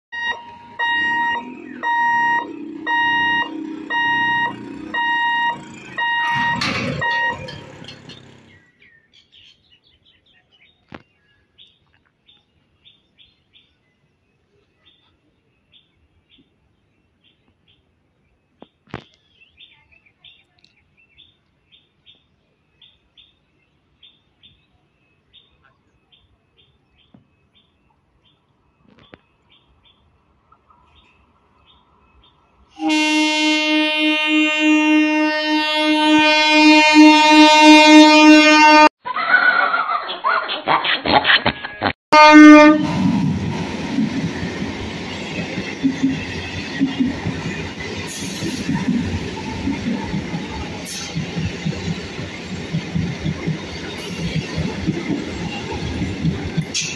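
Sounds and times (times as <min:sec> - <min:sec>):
level crossing alarm beeps: 0:00.1 - 0:08.0
birds chirping: 0:00.2 - 0:37.4, 0:43.4 - 0:56.9
motorbikes passing: 0:00.5 - 0:09.0.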